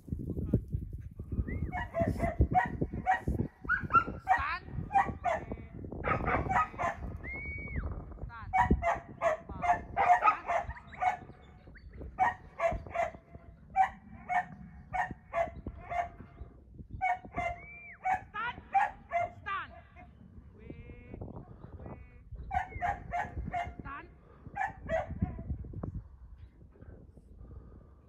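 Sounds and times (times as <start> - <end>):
shepherd's whistle: 7.2 - 7.8, 17.5 - 18.0.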